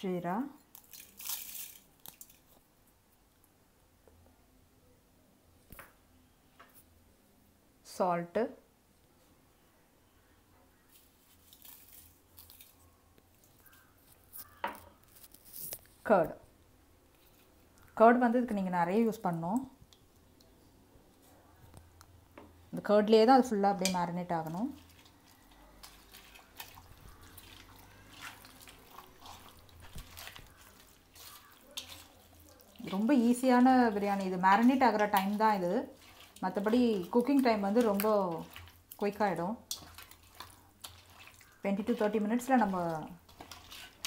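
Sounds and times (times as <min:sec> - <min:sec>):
salt scraping and rustling: 0:00.8 - 0:02.5, 0:10.9 - 0:12.9, 0:24.6 - 0:44.0
wet squelches of marinade: 0:10.8 - 0:14.6, 0:22.8 - 0:44.0.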